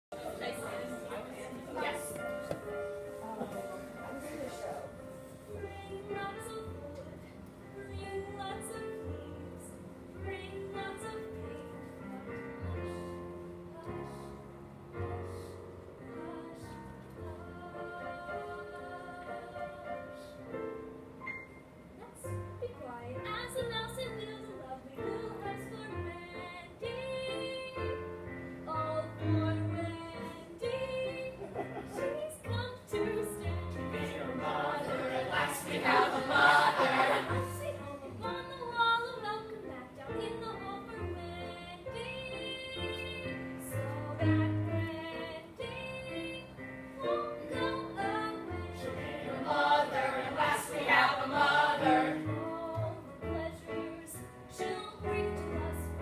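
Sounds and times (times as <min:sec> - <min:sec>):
young voices singing together: 0:31.4 - 0:38.4, 0:47.2 - 0:53.7.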